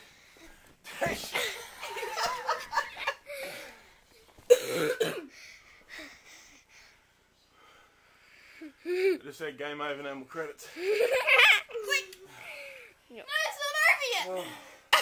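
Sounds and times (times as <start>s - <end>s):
people laughing: 1.3s - 3.4s.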